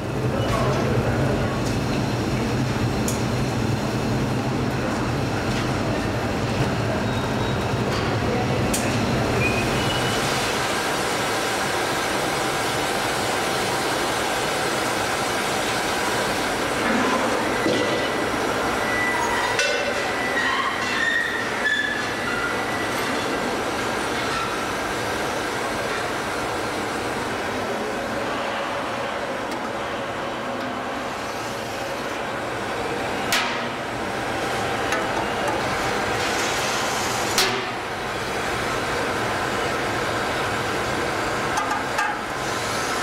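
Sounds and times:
furnace and machinery noise: 0:00.0 - 0:43.0
short high squealing tones: 0:20.2 - 0:22.8.

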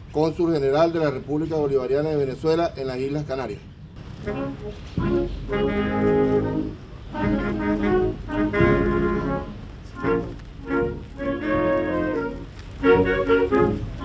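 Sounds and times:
brass chords: 0:04.0 - 0:14.0.

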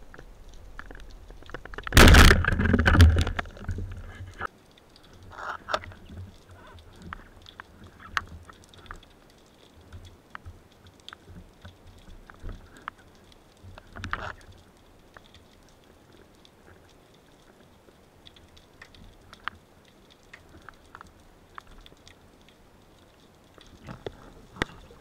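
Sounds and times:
faint underwater clicks and crackles: 0:00.0 - 0:25.0
low rumbling water noise: 0:00.0 - 0:25.0
speargun firing underwater: 0:01.8 - 0:03.3.

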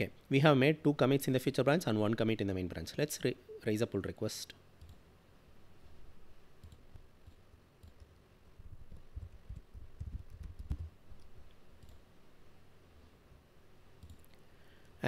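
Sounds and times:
keyboard typing: 0:06.6 - 0:08.2, 0:08.9 - 0:12.0, 0:14.0 - 0:14.4.

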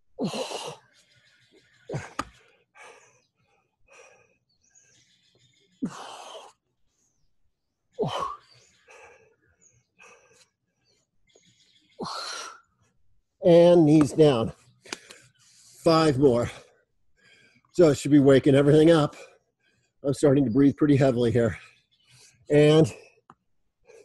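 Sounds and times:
quiet breaths: 0:00.3 - 0:07.3, 0:08.0 - 0:13.0, 0:14.5 - 0:17.8, 0:19.1 - 0:20.0, 0:21.4 - 0:24.0.

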